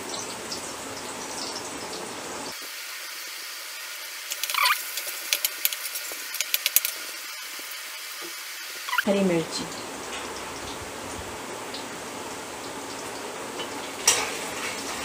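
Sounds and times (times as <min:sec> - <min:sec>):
vegetables sizzling in hot oil: 0:00.0 - 0:15.0
metal spatula scraping a pan: 0:04.3 - 0:07.1.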